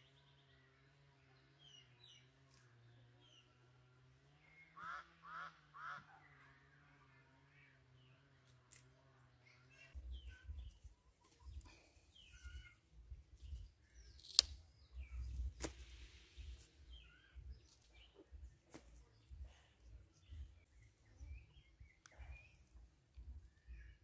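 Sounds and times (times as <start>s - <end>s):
birds chirping: 9.2s - 24.0s
steady low hum: 14.6s - 24.0s.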